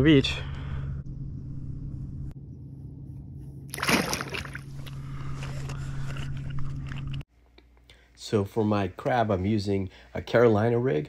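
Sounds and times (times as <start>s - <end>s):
steady low hum: 0.0s - 9.0s
fish splashing at surface: 3.7s - 4.9s.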